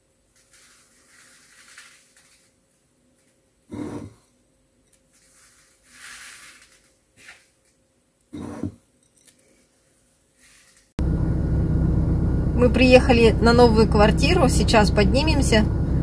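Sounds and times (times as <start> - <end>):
hand rubbing coarse salt: 0.3 - 2.6, 5.1 - 7.5, 10.4 - 10.9
car interior rumble: 11.0 - 16.0.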